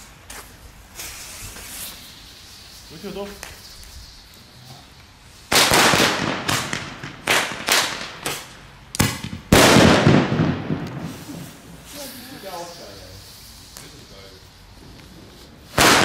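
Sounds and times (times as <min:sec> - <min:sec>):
fireworks loud bangs: 0:05.5 - 0:12.8, 0:14.8 - 0:16.0.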